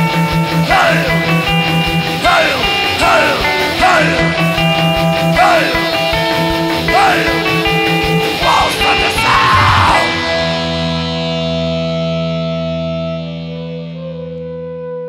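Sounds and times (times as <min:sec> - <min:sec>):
heavy metal song: 0:00.0 - 0:13.9.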